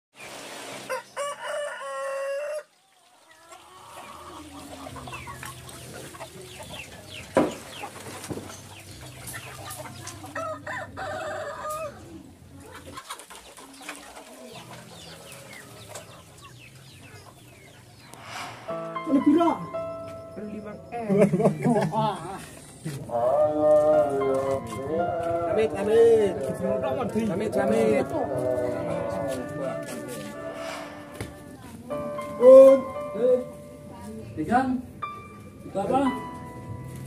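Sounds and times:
chickens clucking: 0.7 - 19.0, 19.7 - 34.0
rooster crowing: 0.9 - 2.8, 10.4 - 12.0.

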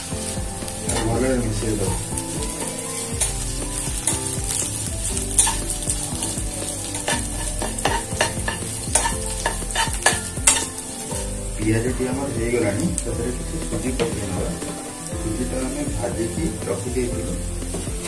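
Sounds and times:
spatula scraping a pan: 0.0 - 11.4
onions sizzling in hot oil: 0.0 - 18.0
spatula knocking against pan: 7.0 - 10.7.

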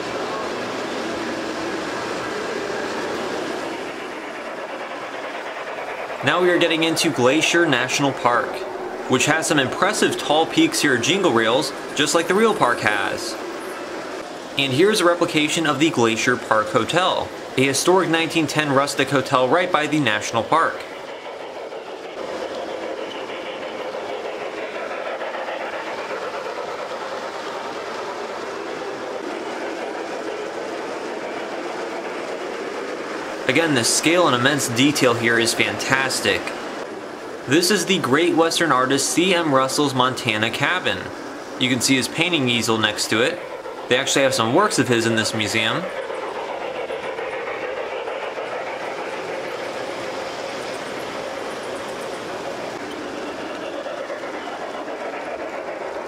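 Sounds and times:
model train wheels rumbling on rails: 0.0 - 56.0.

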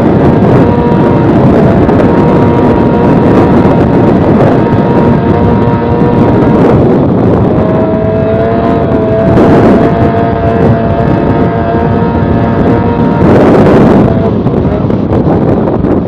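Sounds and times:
outboard motor droning: 0.0 - 16.0
rush of water and wind: 0.0 - 16.0.

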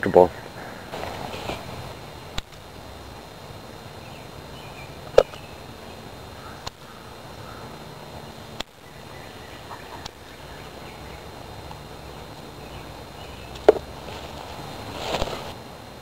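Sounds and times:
outdoor background: 0.0 - 16.0.

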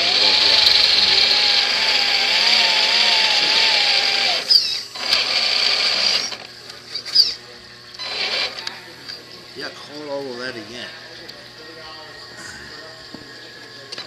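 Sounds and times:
toy truck electric motor whining: 0.0 - 8.8.

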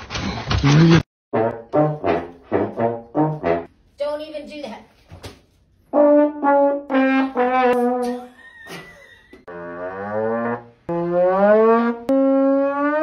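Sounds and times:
trombone notes and slides: 0.7 - 3.7, 5.9 - 8.2, 9.5 - 13.0.

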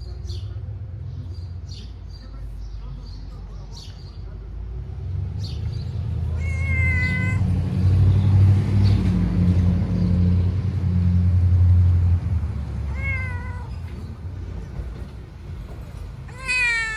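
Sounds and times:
cat meowing: 6.2 - 7.6, 12.8 - 14.0, 16.2 - 16.9.

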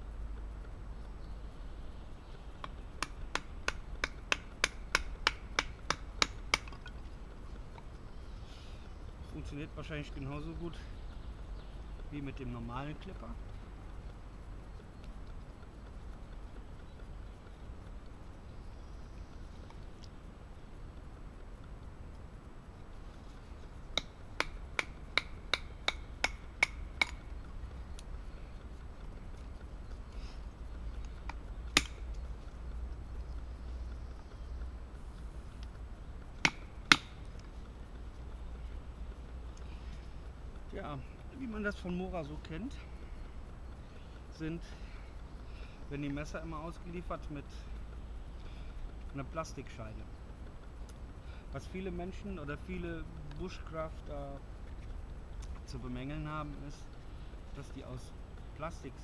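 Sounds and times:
wooden baton striking knife spine: 31.3 - 32.1, 36.4 - 37.2.

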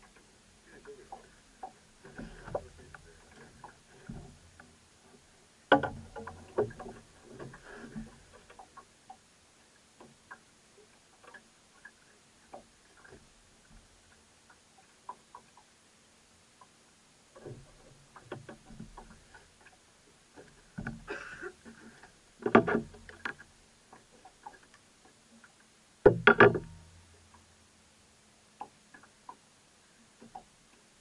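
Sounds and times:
light clicks and knocks: 0.0 - 9.2, 17.4 - 27.5, 30.2 - 30.8.

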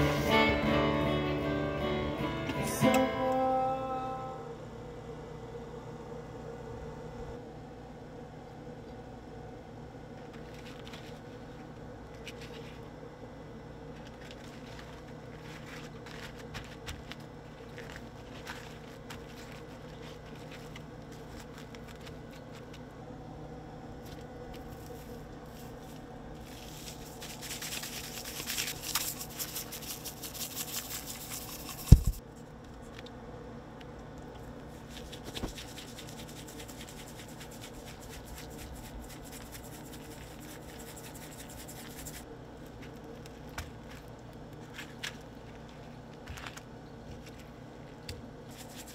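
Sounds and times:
steady low hum: 0.0 - 48.9
handling and patting sounds: 10.1 - 13.0, 13.8 - 22.9, 24.0 - 33.1, 34.0 - 48.9
shaker can rattling: 24.6 - 32.2, 34.7 - 42.2, 48.5 - 48.9.

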